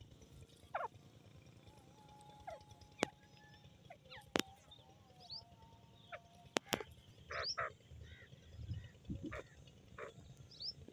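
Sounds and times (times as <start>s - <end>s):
bird calling pulsed notes: 0.6s - 1.0s, 1.6s - 10.9s
sharp clicks: 6.5s - 6.9s.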